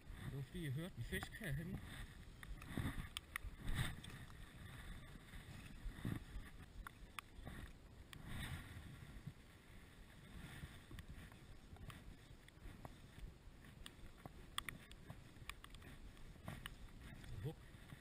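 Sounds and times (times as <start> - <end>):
fishing rod clicks and taps: 2.4 - 4.4, 6.7 - 8.2, 13.8 - 16.8.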